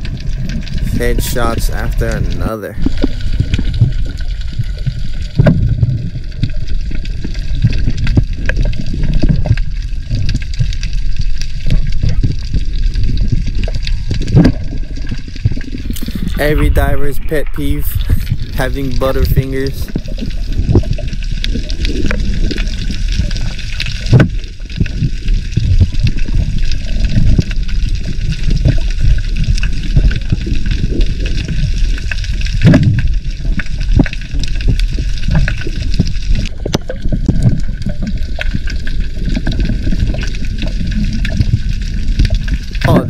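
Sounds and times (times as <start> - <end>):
underwater gurgling: 0.0 - 43.0.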